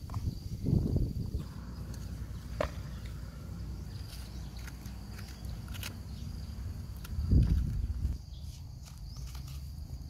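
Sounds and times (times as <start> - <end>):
insect trill: 0.0 - 10.0.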